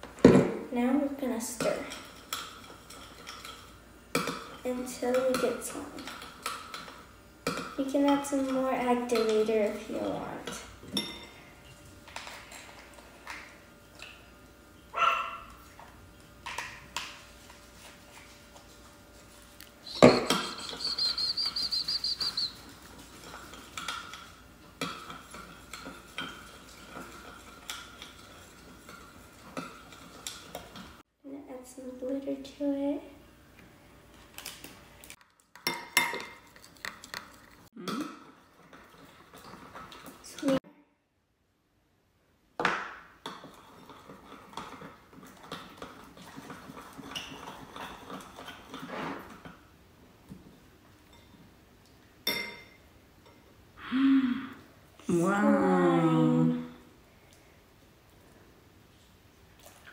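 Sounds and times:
high chirps: 19.8 - 22.6.

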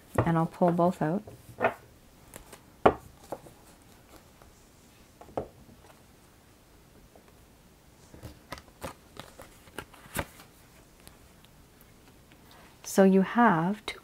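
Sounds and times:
tarot cards tapping on table: 2.8 - 3.4.

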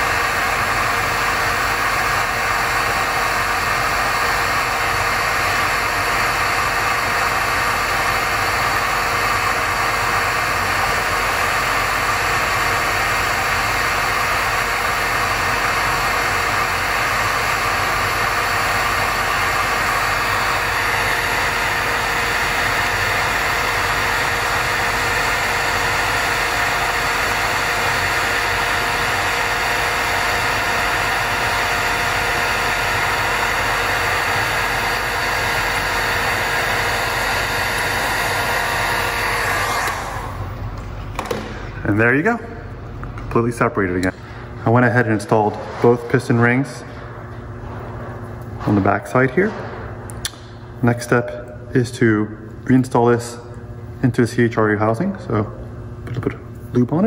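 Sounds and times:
heat gun blowing: 0.0 - 40.6.

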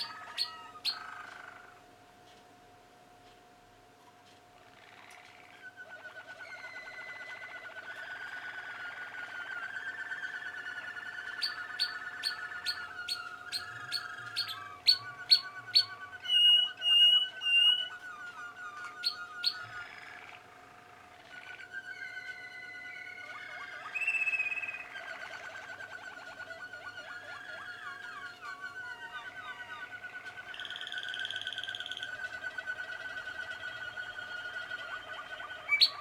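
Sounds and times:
canaries singing: 0.0 - 1.9, 4.5 - 36.0.

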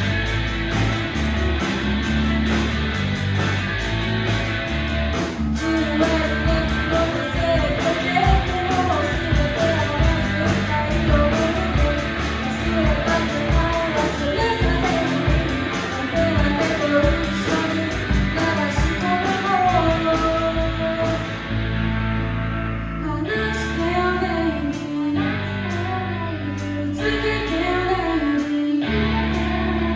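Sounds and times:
drum kit beat: 0.0 - 21.4
electric guitars: 0.0 - 29.9
woman singing: 5.6 - 21.4, 23.0 - 29.9.

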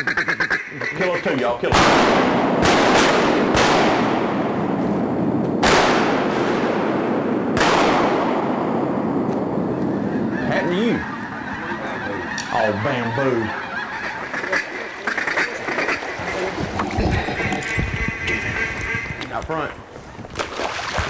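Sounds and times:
ducks quacking: 0.0 - 1.6, 9.7 - 19.4
shotgun blasts echoing: 1.7 - 9.6.

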